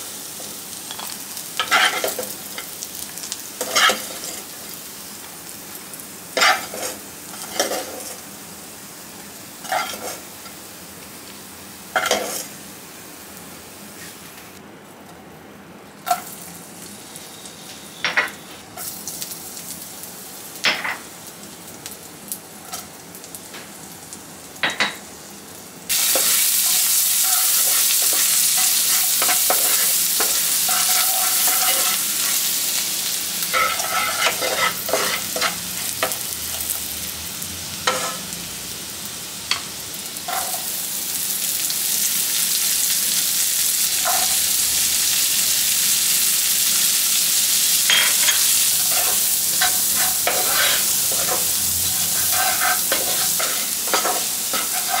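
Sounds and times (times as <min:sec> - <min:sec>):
food frying loudly in butter: 0:00.0 - 0:14.5, 0:16.0 - 0:55.0
oil sizzling: 0:00.0 - 0:14.6, 0:16.0 - 0:55.0
metal spoon scraping frying pan: 0:27.2 - 0:32.4, 0:33.5 - 0:36.2, 0:47.9 - 0:55.0.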